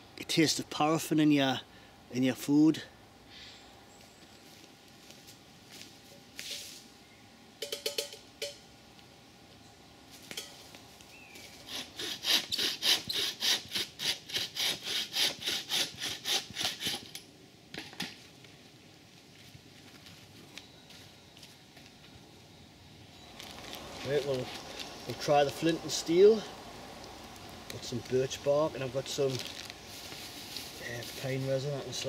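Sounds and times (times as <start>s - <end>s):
bow saw cutting wood: 11.6s - 17.2s.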